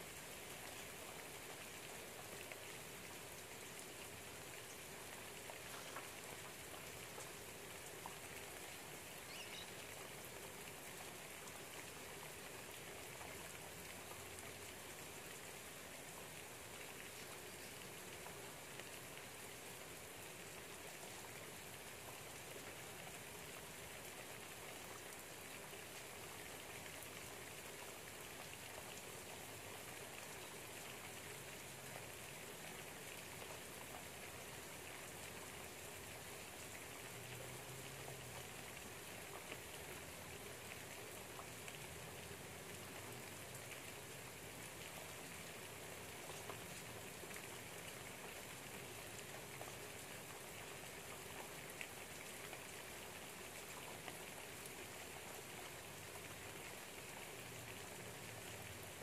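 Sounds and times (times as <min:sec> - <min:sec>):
light rain pattering: 0:00.0 - 0:59.0
louder raindrops: 0:00.1 - 0:20.8.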